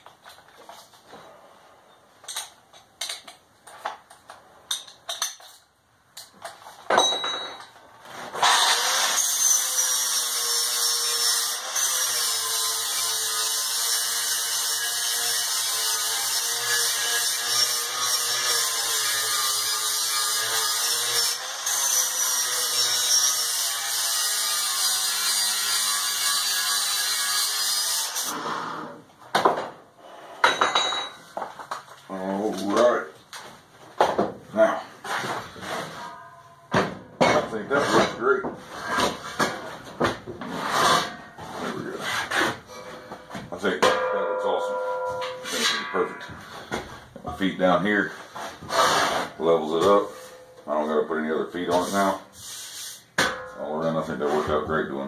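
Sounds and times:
tool handling clicks and knocks: 2.2 - 7.8
angle grinder grinding steel: 8.4 - 28.4, 44.0 - 46.6.

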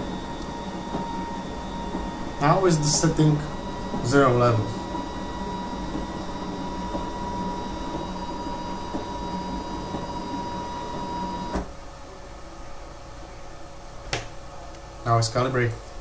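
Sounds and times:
stepper motor whining: 0.0 - 11.7.

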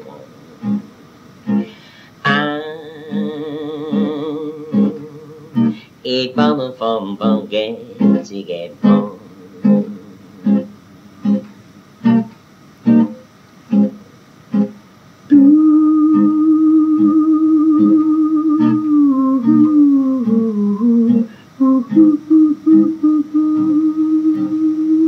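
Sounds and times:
man singing: 0.0 - 0.6, 1.7 - 10.5, 15.3 - 25.0
acoustic guitar: 0.0 - 25.0
even beat: 6.5 - 12.3.

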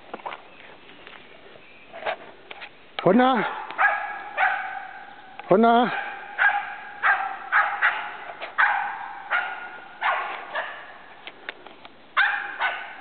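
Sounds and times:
dog barking sharply: 3.5 - 5.0, 5.9 - 11.0, 12.2 - 13.0.

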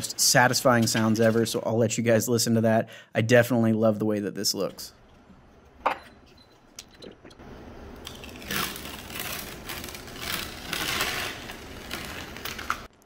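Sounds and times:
stencil film peeling off: 8.0 - 13.0.

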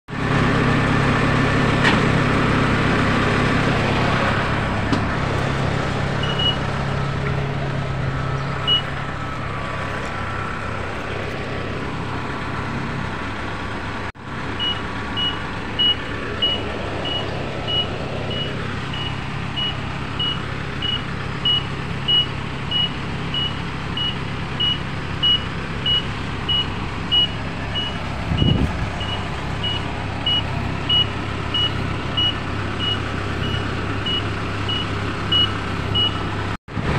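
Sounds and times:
diesel engine running: 0.1 - 36.9
high electronic warning beeps: 6.2 - 6.6, 8.6 - 8.9, 14.6 - 36.2.

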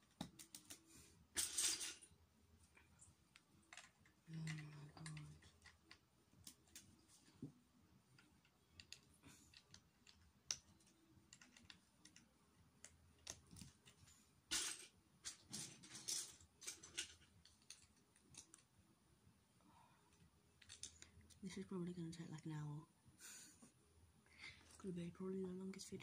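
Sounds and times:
plastic bricks clicking and rattling: 3.3 - 6.8, 8.2 - 18.6, 20.6 - 21.2.

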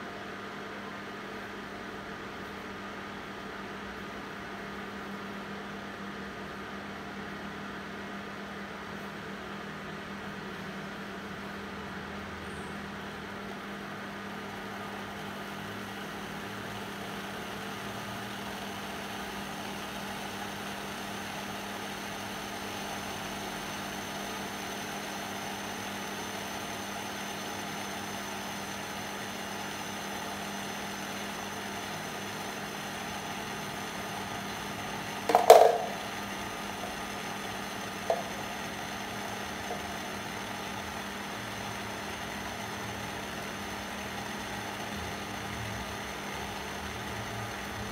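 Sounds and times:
cooktop fan hum: 0.0 - 47.9
sharp knock: 35.3 - 36.0.

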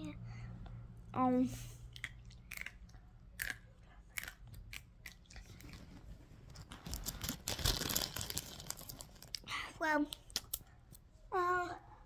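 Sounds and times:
biting and chewing: 1.9 - 9.4.

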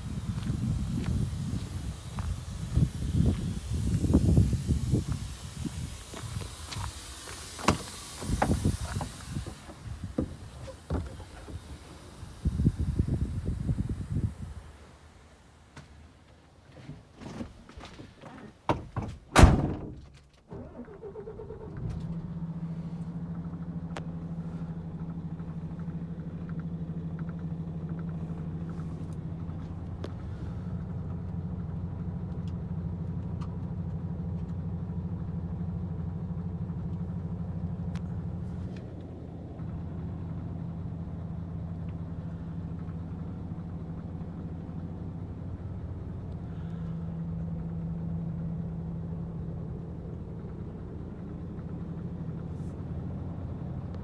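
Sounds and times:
diesel engine cranking and idling: 0.0 - 54.0
knocks and a loud thunk: 18.3 - 20.2.

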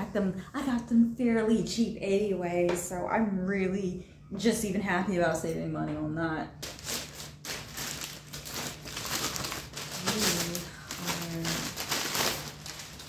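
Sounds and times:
plastic bag crinkling: 6.6 - 13.0.

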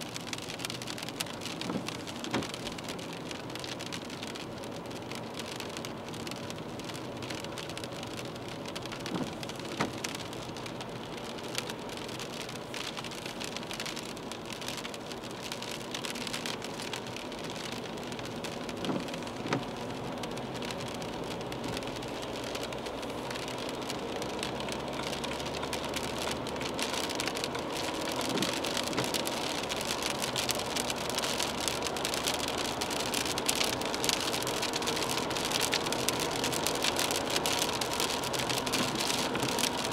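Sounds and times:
rain and tyre hiss on wet road: 0.0 - 39.9
windscreen wiper knocks: 9.1 - 10.0, 18.7 - 19.7.

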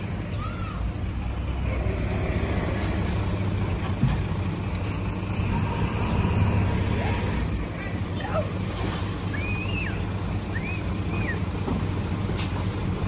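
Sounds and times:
bulldozer diesel engine running: 0.0 - 13.0.

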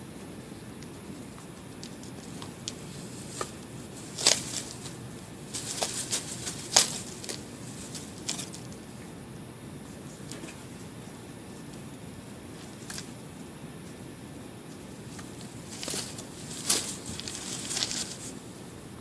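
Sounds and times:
wing feathers rustling: 0.4 - 9.0, 9.8 - 18.7.

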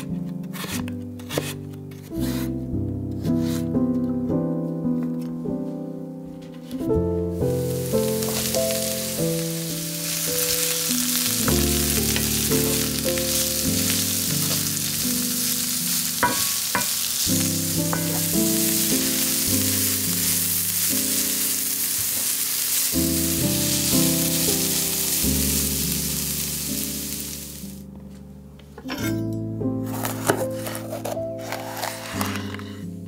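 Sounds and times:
background music: 0.0 - 33.0
vegetables sizzling in a frying pan: 7.4 - 27.8.

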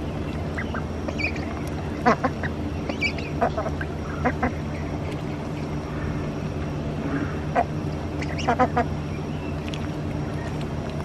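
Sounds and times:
ducks quacking: 0.0 - 6.1, 7.1 - 9.0
steady low hum: 0.0 - 11.0.

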